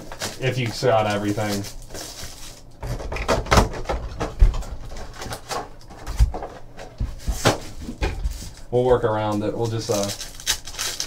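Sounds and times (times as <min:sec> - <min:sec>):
plastic wrapping crinkling: 0:00.0 - 0:02.9, 0:07.2 - 0:11.0.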